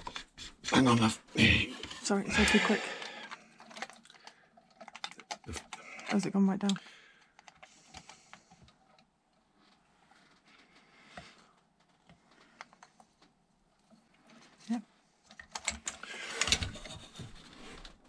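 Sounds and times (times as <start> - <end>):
metal parts clicking and clinking: 3.2 - 6.8.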